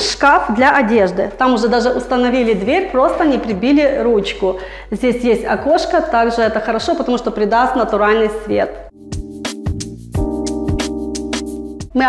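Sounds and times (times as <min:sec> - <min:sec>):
keyboard chords: 0:08.8 - 0:12.0
percussive beat: 0:08.9 - 0:12.0.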